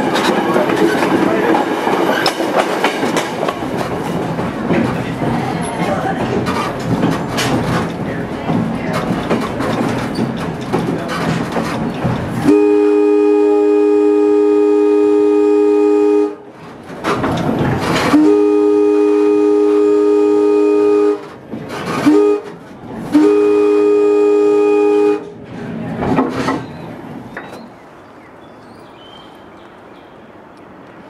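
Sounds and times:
engine and wheel rumble: 0.0s - 13.4s, 16.4s - 28.0s
outdoor background: 0.0s - 31.0s
locomotive air horn blasts: 12.4s - 16.5s, 18.0s - 25.4s.

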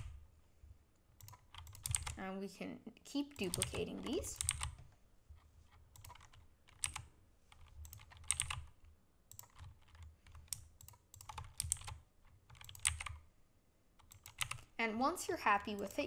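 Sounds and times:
faint keyboard keystrokes: 5.7s - 13.2s.

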